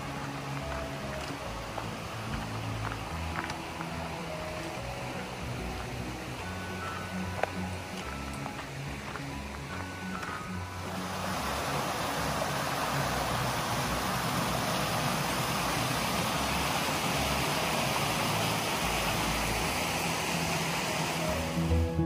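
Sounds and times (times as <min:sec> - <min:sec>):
stream rushing over rocks: 0:00.0 - 0:22.0.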